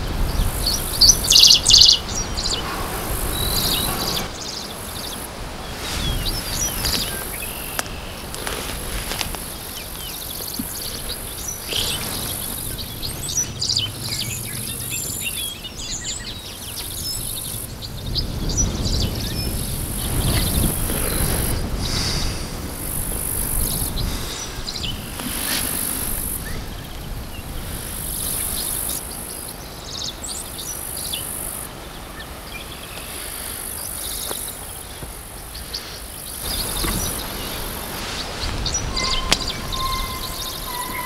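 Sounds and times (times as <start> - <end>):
insects buzzing: 0.0 - 41.0
wind rumbling on microphone: 0.0 - 41.0
bird chirps: 0.3 - 2.7, 35.6 - 41.0.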